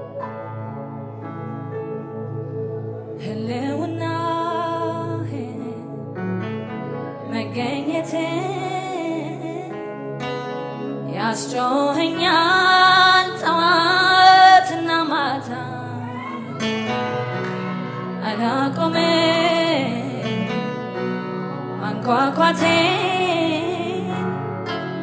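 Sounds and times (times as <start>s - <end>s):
woman singing gospel: 3.2s - 5.8s, 7.3s - 9.8s, 11.1s - 16.6s, 18.2s - 20.6s, 21.8s - 24.3s.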